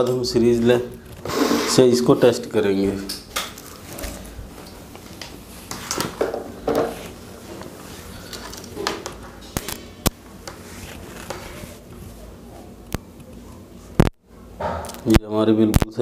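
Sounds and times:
wires rustling on wooden table: 3.2s - 12.4s.

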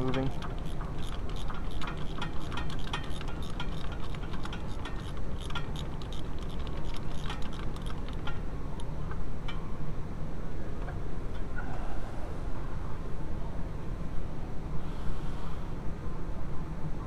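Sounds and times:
ratchet wrench clicking: 0.0s - 8.9s
steady low hum: 0.0s - 17.0s.

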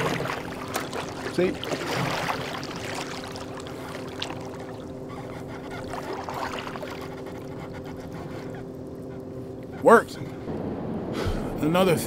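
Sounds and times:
water trickling: 0.0s - 9.2s.

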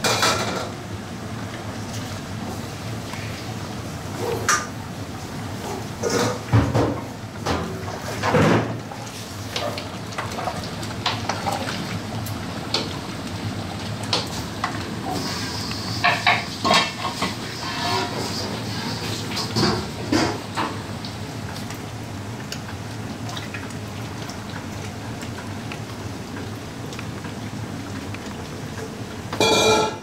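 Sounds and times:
low kitchen hum: 0.0s - 30.0s
metal lids and ladle clanking: 29.4s - 30.0s.

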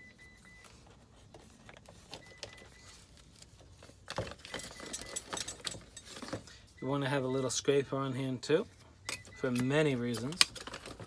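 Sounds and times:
hand tools clinking: 4.6s - 6.3s.

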